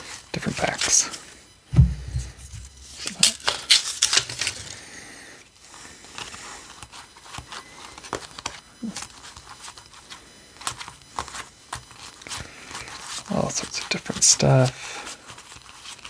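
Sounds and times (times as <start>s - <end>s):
paper sleeve rustling: 1.8s - 4.8s, 10.7s - 16.0s.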